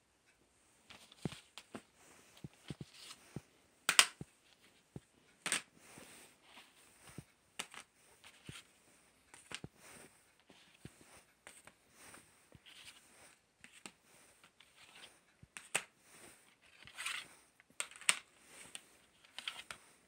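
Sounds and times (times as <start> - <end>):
plastic cd cases clacking: 3.8 - 4.2, 17.8 - 18.3, 19.2 - 19.8.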